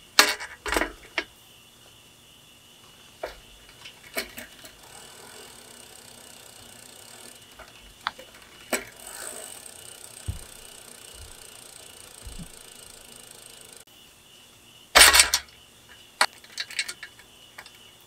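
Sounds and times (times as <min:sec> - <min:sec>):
bicycle parts metal clicks: 0:00.2 - 0:01.3, 0:03.2 - 0:13.8, 0:15.0 - 0:15.5, 0:16.2 - 0:17.8
dull thump: 0:10.2 - 0:10.6.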